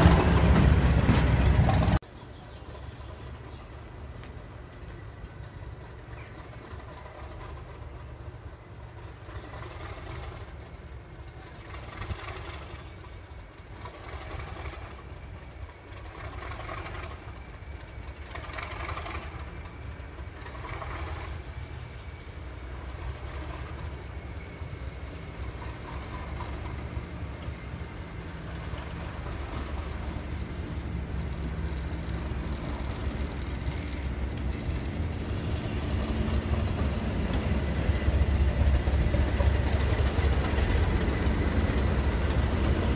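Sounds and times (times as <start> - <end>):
diesel locomotive engine: 0.0 - 42.9.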